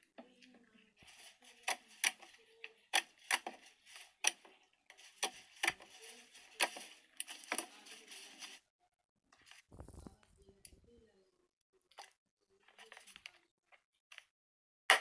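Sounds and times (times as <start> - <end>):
sticky crackling hiss: 9.8 - 11.0.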